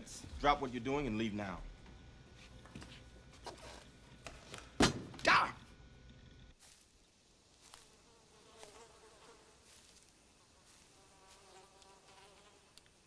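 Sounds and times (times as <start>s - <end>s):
flies buzzing: 7.4s - 13.0s.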